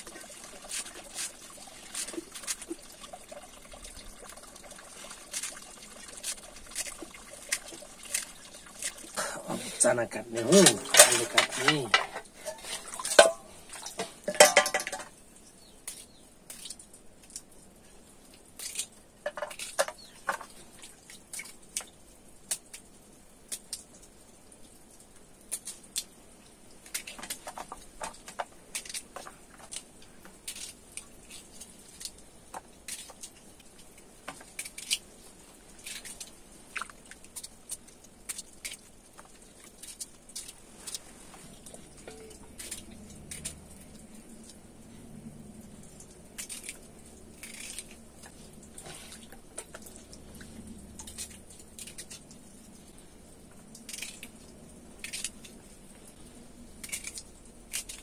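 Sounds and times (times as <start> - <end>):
pieces dropping into metal bowl: 10.6 - 15.1, 19.2 - 20.5.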